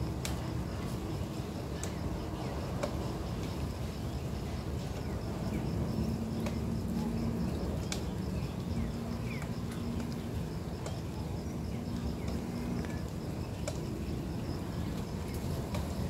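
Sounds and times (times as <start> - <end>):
faint clicks and chirps: 1.8 - 3.6, 7.6 - 14.0.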